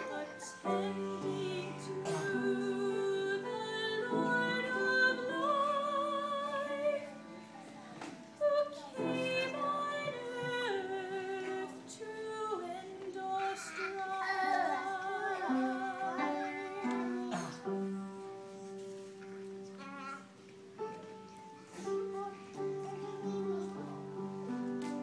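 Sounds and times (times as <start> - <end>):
woman singing with vibrato: 0.0 - 7.2, 8.4 - 17.5.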